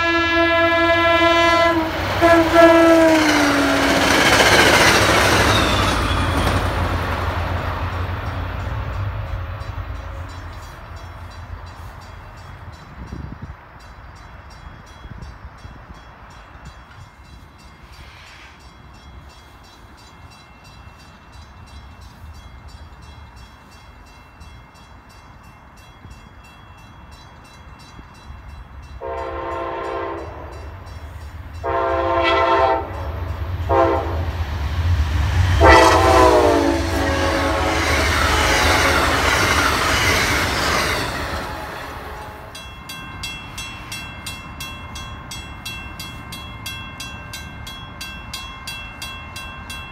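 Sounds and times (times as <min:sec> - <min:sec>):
locomotive horn: 0:00.0 - 0:04.1, 0:29.0 - 0:30.9, 0:31.6 - 0:34.4, 0:35.5 - 0:39.6, 0:41.3 - 0:42.6
crossing bell ringing: 0:00.0 - 0:34.3, 0:35.5 - 0:49.9
train rushing past: 0:00.0 - 0:49.9.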